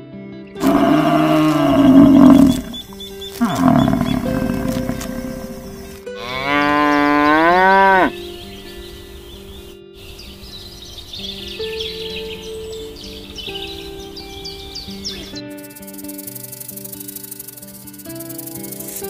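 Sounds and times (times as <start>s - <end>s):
sustained background music: 0.0s - 19.0s
cow mooing: 0.6s - 8.2s.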